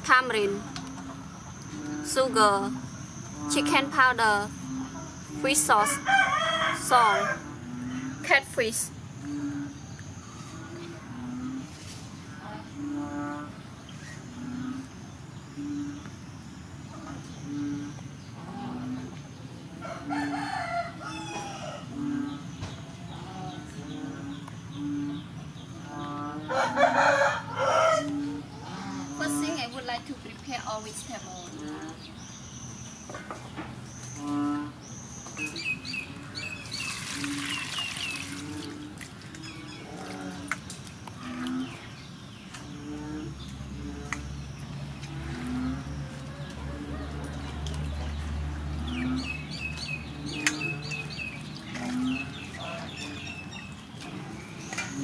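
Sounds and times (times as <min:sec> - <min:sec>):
rooster crowing: 0:05.8 - 0:07.5, 0:19.8 - 0:21.9, 0:26.4 - 0:28.3
small birds chirping: 0:21.4 - 0:55.0
water splashing in steel bowl: 0:36.6 - 0:39.3.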